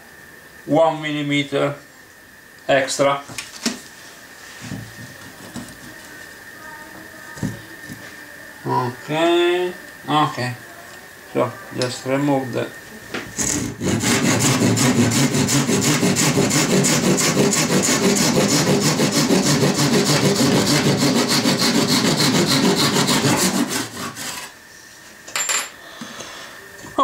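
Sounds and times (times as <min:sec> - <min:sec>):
hand saw cutting wood: 0:13.4 - 0:24.6.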